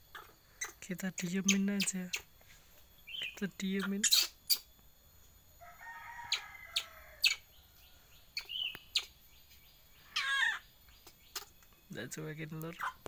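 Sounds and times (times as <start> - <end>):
rooster crowing: 5.6 - 8.2.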